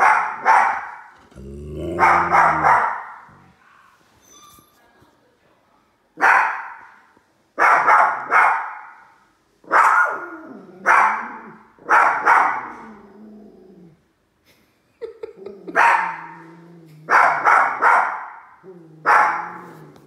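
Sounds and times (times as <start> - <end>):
small dogs barking: 0.0 - 1.1, 1.8 - 3.4, 6.2 - 6.9, 7.6 - 9.0, 9.7 - 12.9, 15.7 - 16.4, 17.0 - 19.8.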